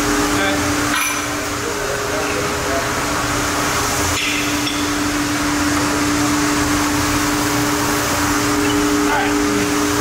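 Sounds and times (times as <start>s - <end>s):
machinery hum: 0.0s - 10.0s.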